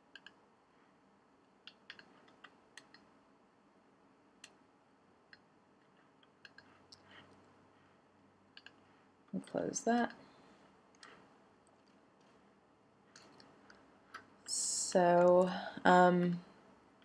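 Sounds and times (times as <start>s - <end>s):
faint computer clicks: 0.1s - 0.4s, 6.2s - 7.4s, 8.5s - 8.8s.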